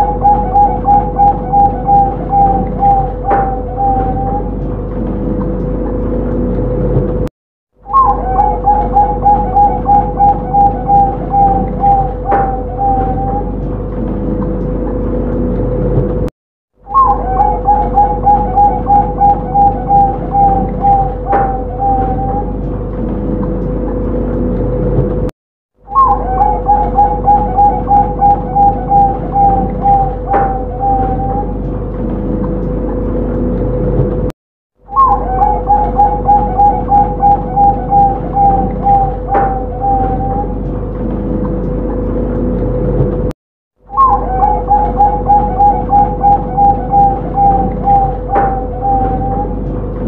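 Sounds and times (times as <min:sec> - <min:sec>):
dove cooing: 0:00.0 - 0:04.7, 0:07.9 - 0:13.7, 0:16.9 - 0:22.7, 0:25.9 - 0:31.6, 0:34.9 - 0:40.6, 0:43.9 - 0:49.6
steady hum: 0:00.0 - 0:07.3, 0:07.9 - 0:16.3, 0:17.0 - 0:25.3, 0:26.0 - 0:34.3, 0:34.9 - 0:43.3, 0:43.9 - 0:50.0.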